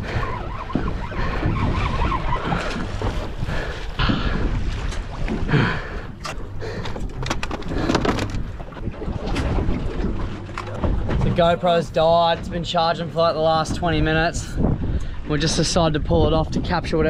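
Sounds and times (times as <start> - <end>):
water noise around boat: 0.0 - 17.0
wind buffeting microphone: 0.0 - 17.0
sharp clicks and knocks: 6.2 - 8.5.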